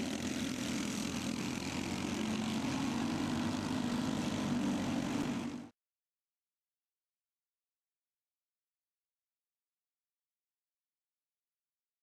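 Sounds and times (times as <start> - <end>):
go-kart engines buzzing: 0.0 - 5.7.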